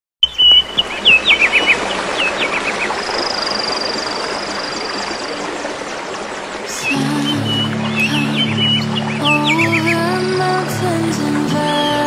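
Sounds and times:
birds chirping and whistling: 0.2s - 5.1s, 6.8s - 10.1s
stream running over rocks: 0.2s - 12.0s.

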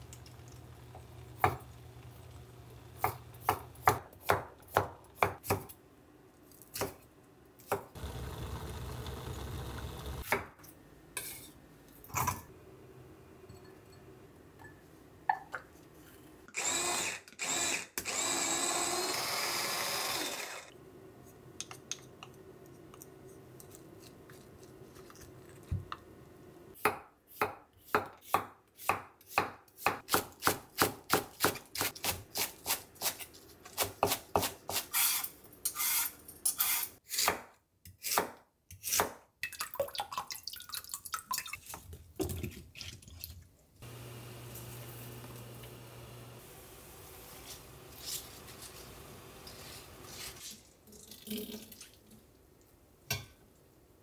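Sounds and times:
electric food chopper whirring: 8.0s - 10.2s, 16.5s - 20.7s, 43.8s - 46.4s.

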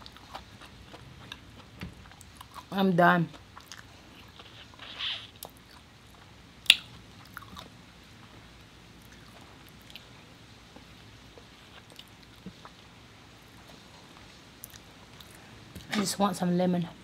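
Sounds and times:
person chewing: 0.0s - 7.7s, 10.7s - 12.9s.

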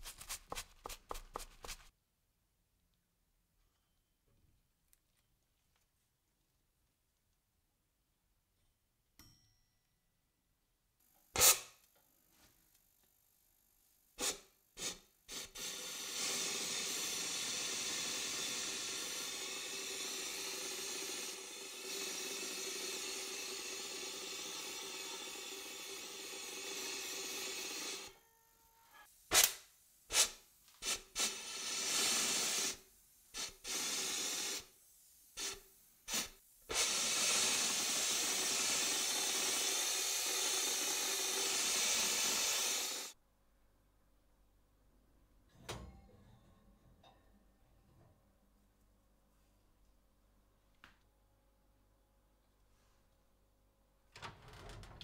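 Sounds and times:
powder coating gun spraying: 14.2s - 28.1s, 29.3s - 43.2s.

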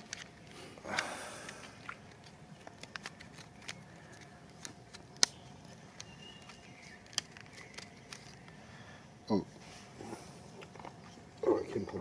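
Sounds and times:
plastic packet crinkling: 1.5s - 8.6s.

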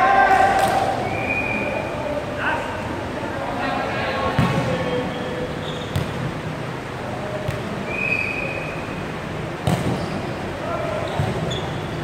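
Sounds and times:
din of gym hall: 0.0s - 12.0s
sneaker squeak: 4.4s - 6.2s, 9.7s - 12.0s.

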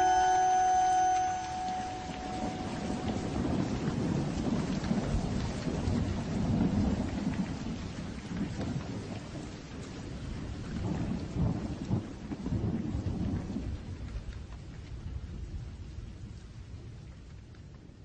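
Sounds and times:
rain falling: 0.0s - 18.0s
low thunder rumbles: 1.4s - 14.4s.

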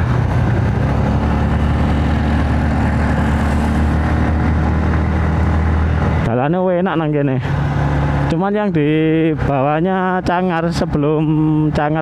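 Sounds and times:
motorcycle engine running: 0.0s - 6.3s.

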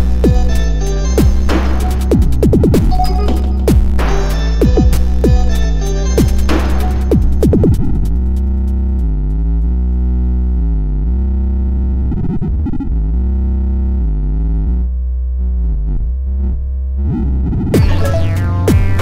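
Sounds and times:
synthesizer chords: 0.0s - 8.6s, 17.8s - 19.0s
heavy bass: 0.0s - 19.0s
sharp percussive hits: 1.2s - 5.6s, 6.2s - 8.4s, 17.8s - 19.0s.

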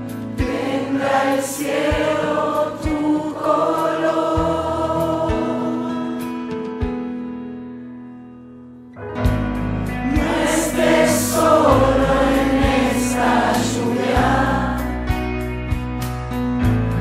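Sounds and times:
choir singing over beat: 0.3s - 6.3s, 10.0s - 15.2s.

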